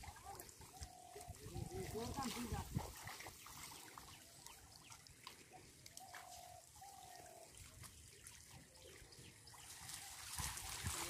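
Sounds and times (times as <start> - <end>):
water trickling and dripping: 0.0 - 11.0.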